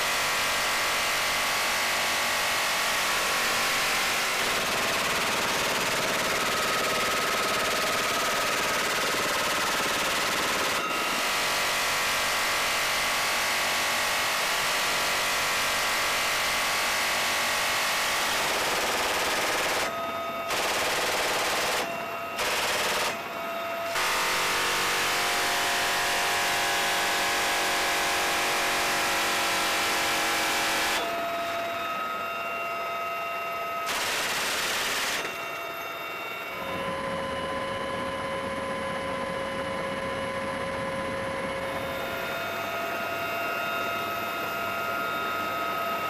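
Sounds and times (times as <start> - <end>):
helicopter engine and rotor whine: 0.0 - 46.0
machine gun firing bursts: 3.0 - 11.8, 17.6 - 19.9, 20.5 - 23.3, 23.9 - 31.0, 33.9 - 35.3.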